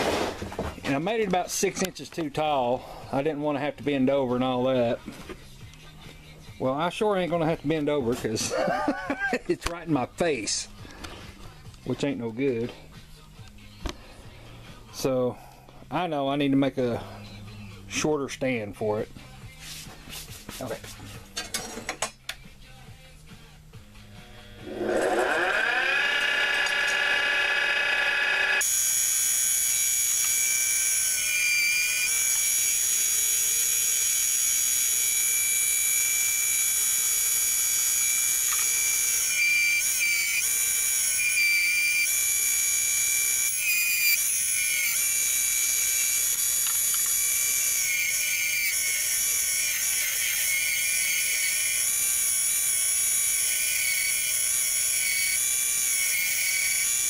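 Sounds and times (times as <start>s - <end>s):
turning tool cutting wood: 24.3s - 57.0s
lathe motor whining: 24.4s - 57.0s.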